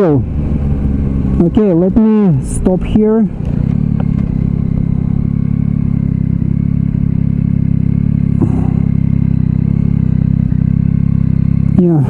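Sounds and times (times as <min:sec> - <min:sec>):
motorcycle engine at low revs: 0:00.0 - 0:12.0.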